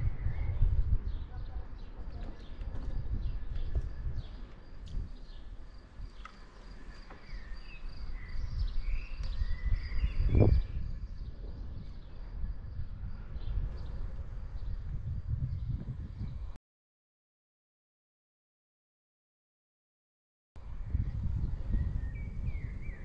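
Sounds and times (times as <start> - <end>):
birds chirping: 0.0 - 16.6
wind rumbling on microphone: 0.0 - 16.6, 20.6 - 23.0.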